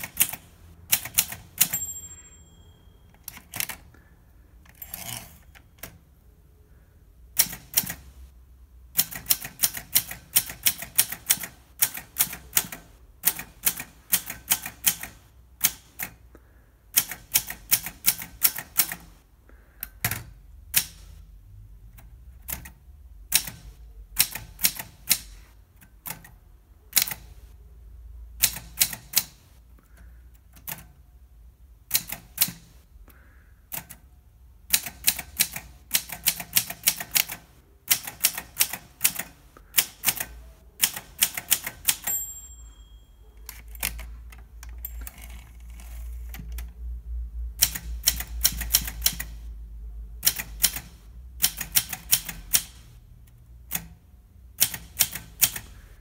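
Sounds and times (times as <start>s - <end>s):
manual typewriter keystrokes: 0.0s - 2.0s, 3.1s - 4.0s, 4.6s - 6.0s, 7.4s - 8.2s, 8.9s - 16.2s, 16.9s - 19.2s, 19.8s - 21.2s, 22.0s - 27.4s, 28.4s - 31.0s, 31.8s - 32.8s, 33.7s - 42.4s, 43.4s - 46.7s, 47.6s - 49.5s, 50.2s - 56.0s.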